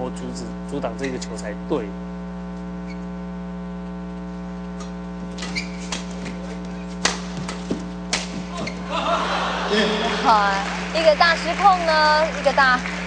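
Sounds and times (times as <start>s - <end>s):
electrical mains hum: 0.0s - 13.0s
badminton rackets hitting shuttlecock: 5.3s - 8.8s.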